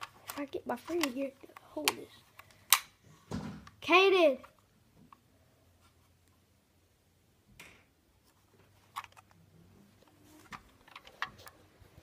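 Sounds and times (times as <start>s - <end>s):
soft rustle: 5.6s - 6.4s, 8.2s - 12.0s.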